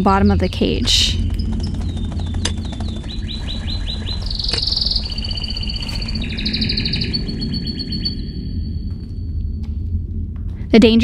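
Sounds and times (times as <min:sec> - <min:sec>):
canary singing: 0:00.0 - 0:08.8
low rumble: 0:00.0 - 0:11.0.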